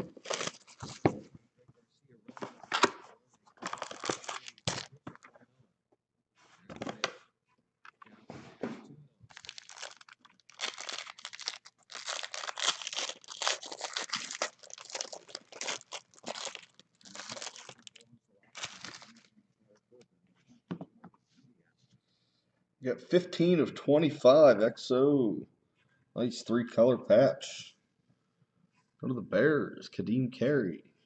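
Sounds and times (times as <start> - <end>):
plastic wrapping crinkling: 0.0 - 1.0, 3.6 - 5.2, 9.3 - 18.0, 18.6 - 19.3
cards being shuffled: 0.0 - 1.1, 3.6 - 5.3, 9.3 - 18.0, 18.6 - 19.3.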